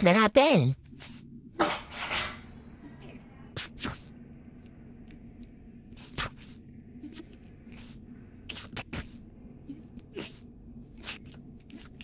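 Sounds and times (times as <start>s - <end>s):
faint steady hum: 0.0s - 12.0s
wet squelches and scrapes: 0.8s - 1.3s, 3.0s - 4.8s, 5.9s - 12.0s.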